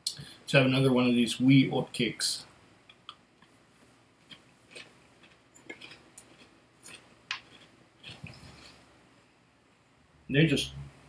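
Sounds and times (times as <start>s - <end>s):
oatcake crunching: 4.3s - 8.8s.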